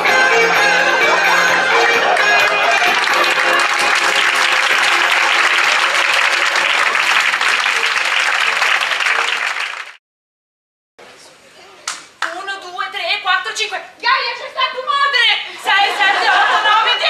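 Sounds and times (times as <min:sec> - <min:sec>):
music: 0:00.0 - 0:09.5
audience applauding: 0:01.0 - 0:10.0.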